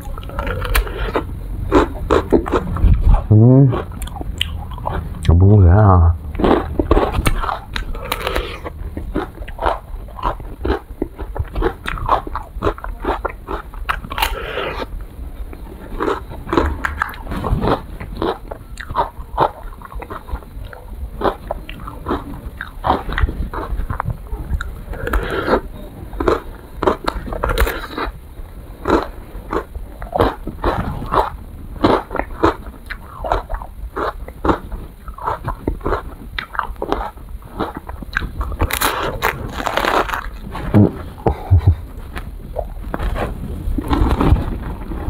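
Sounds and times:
chewing: 0:00.0 - 0:05.4, 0:06.3 - 0:28.2, 0:28.8 - 0:45.0.

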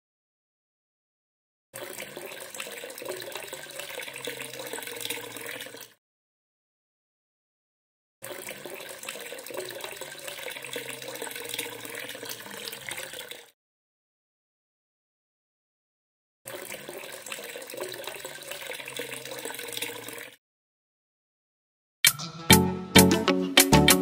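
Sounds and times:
liquid cement pouring: 0:01.8 - 0:06.0, 0:08.2 - 0:13.6, 0:16.5 - 0:20.4.

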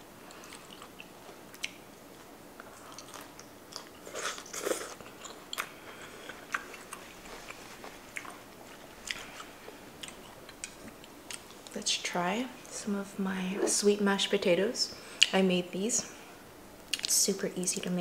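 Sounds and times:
person chewing crunchy food: 0:00.2 - 0:11.8.

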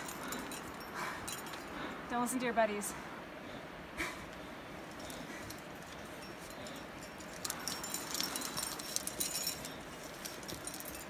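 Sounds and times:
metal climbing gear jangling: 0:00.0 - 0:02.0, 0:04.8 - 0:11.0.

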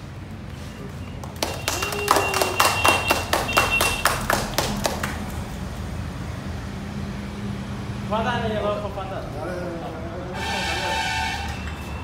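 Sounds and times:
people clapping: 0:01.1 - 0:05.6.

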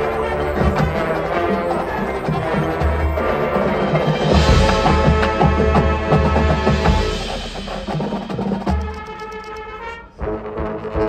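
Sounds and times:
marching band playing: 0:00.0 - 0:11.0.

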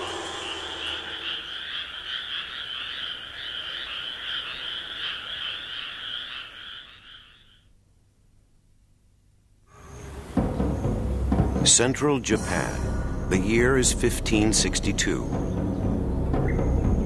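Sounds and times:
frogs trilling: 0:00.0 - 0:07.8, 0:09.7 - 0:11.3.

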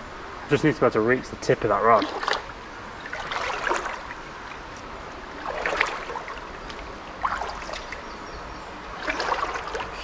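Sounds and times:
water splashing around wading legs: 0:01.8 - 0:08.1, 0:09.0 - 0:10.0.

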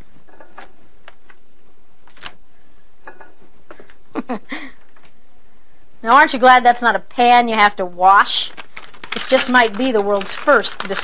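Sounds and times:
steady background hiss: 0:00.0 - 0:09.7
crinkly wrap: 0:02.0 - 0:02.4, 0:08.1 - 0:11.0.

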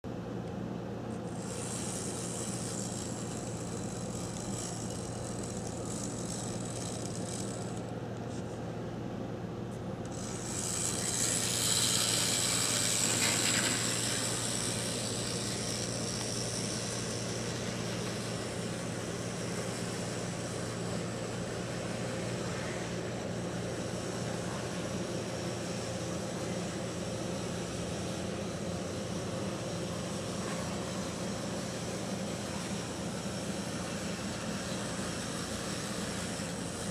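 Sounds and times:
model train motor hum: 0:01.0 - 0:08.6, 0:10.0 - 0:36.9
high whine: 0:09.8 - 0:36.9.

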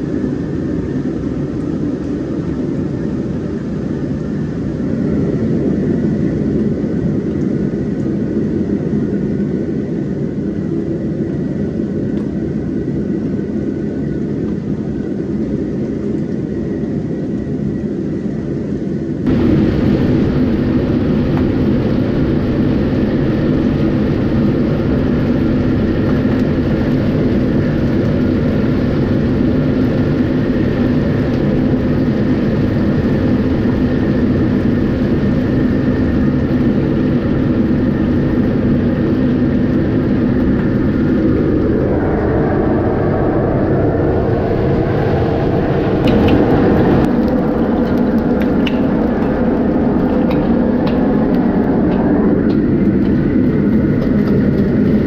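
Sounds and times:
gas burners and extractor fan roar: 0:00.0 - 0:55.0.

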